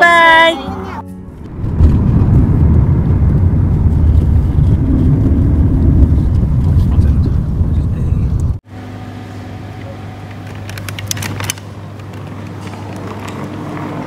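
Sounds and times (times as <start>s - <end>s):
car road rumble: 1.0s - 8.6s.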